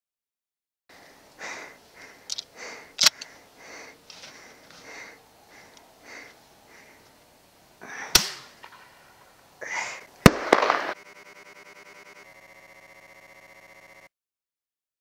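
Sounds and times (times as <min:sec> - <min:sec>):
shotgun shot: 0:08.1 - 0:08.5, 0:10.2 - 0:11.0
explosive bang with crack: 0:10.2 - 0:11.0
buzzing electronic rewind effect: 0:10.8 - 0:14.1.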